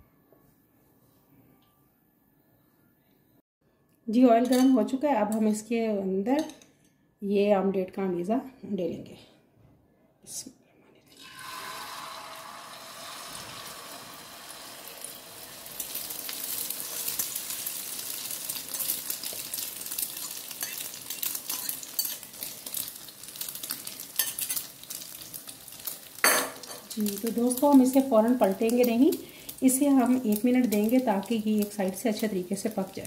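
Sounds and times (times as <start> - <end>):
egg sizzling and popping: 11.2 - 33.0.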